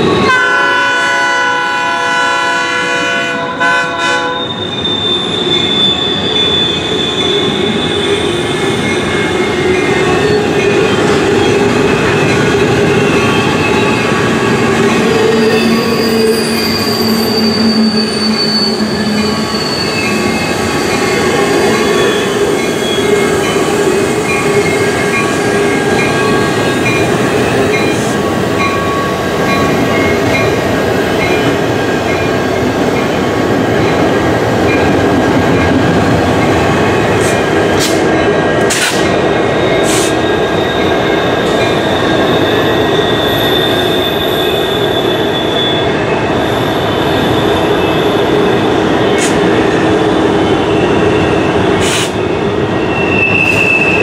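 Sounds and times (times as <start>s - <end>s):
diesel locomotive engines rumbling: 0.0s - 54.0s
high wheel squeal: 4.3s - 30.6s, 39.5s - 54.0s.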